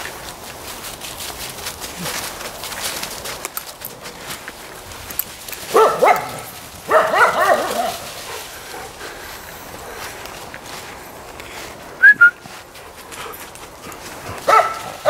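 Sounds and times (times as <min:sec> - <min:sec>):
dog barking: 0:05.7 - 0:08.9, 0:14.5 - 0:15.0.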